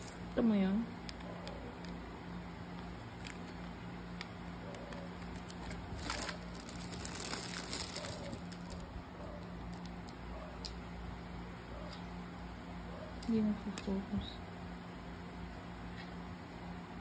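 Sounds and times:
plastic packaging crinkling: 0:02.7 - 0:10.2.

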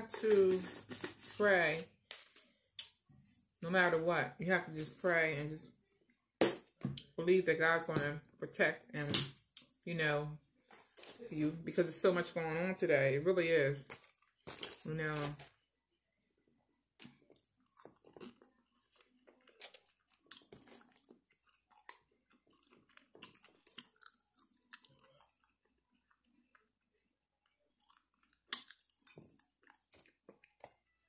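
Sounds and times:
chewing french fries: 0:16.9 - 0:31.0.

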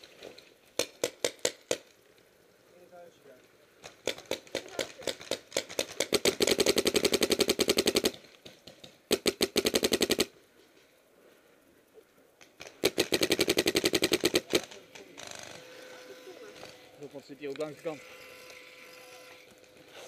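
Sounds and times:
paintball marker firing rapid shots: 0:00.8 - 0:01.9, 0:03.8 - 0:10.3, 0:12.6 - 0:15.1.

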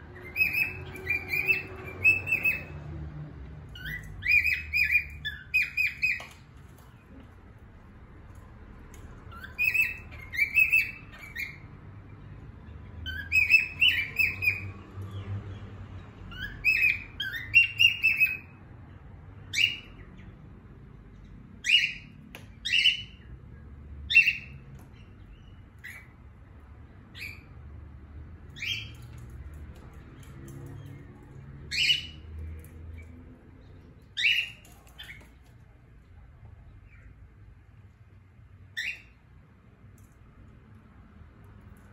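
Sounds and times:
cockatiel chirps: 0:00.2 - 0:02.8, 0:03.7 - 0:06.4, 0:09.2 - 0:11.7, 0:13.0 - 0:14.8, 0:16.3 - 0:18.6, 0:19.5 - 0:20.0, 0:21.6 - 0:23.3, 0:24.1 - 0:26.2, 0:27.1 - 0:27.5, 0:28.5 - 0:29.4, 0:31.7 - 0:33.1, 0:34.0 - 0:35.5, 0:38.7 - 0:39.2.

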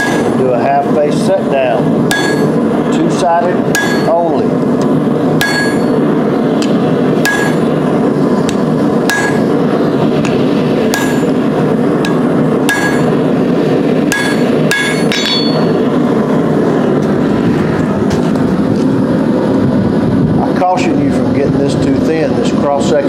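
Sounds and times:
hammer striking steel on anvil: 0:00.0 - 0:00.4, 0:02.1 - 0:02.6, 0:03.7 - 0:04.3, 0:05.4 - 0:06.0, 0:06.6 - 0:07.7, 0:08.5 - 0:09.5, 0:10.2 - 0:11.4, 0:12.0 - 0:13.2, 0:14.1 - 0:15.8
loud steady rushing noise: 0:00.0 - 0:23.0.

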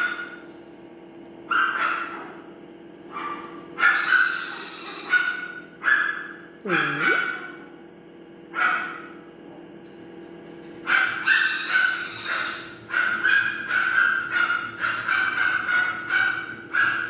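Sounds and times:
parrot chick begging calls: 0:11.4 - 0:12.7.

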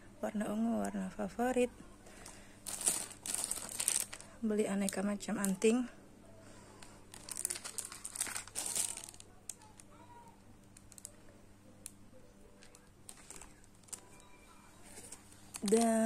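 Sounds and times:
plastic packaging crinkling: 0:02.2 - 0:05.7, 0:06.8 - 0:10.0, 0:10.7 - 0:11.2, 0:12.6 - 0:14.2, 0:14.8 - 0:16.0.

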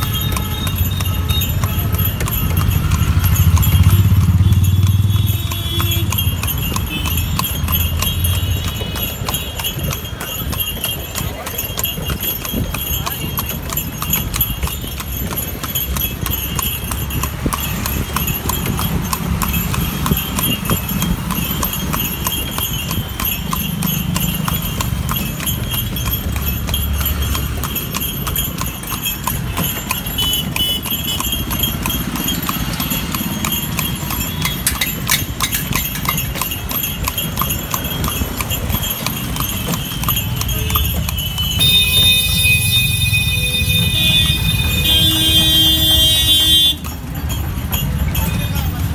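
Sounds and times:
horse hooves clip-clopping on pavement: 0:00.0 - 0:48.9
traffic rumble: 0:00.0 - 0:48.9.

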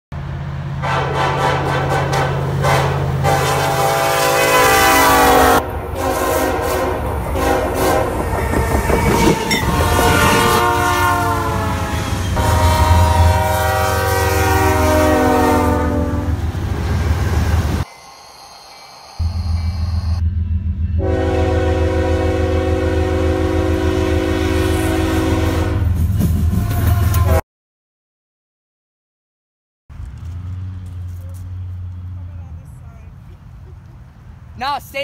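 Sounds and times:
low locomotive rumble: 0:00.2 - 0:17.9, 0:18.7 - 0:27.4, 0:29.9 - 0:34.6
locomotive air horn blasts: 0:00.8 - 0:16.4, 0:21.0 - 0:27.4.

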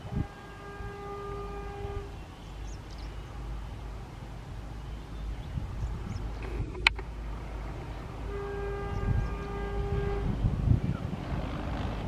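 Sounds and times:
train horn blast: 0:00.0 - 0:02.3, 0:08.2 - 0:10.5
train rumble: 0:00.0 - 0:12.0.

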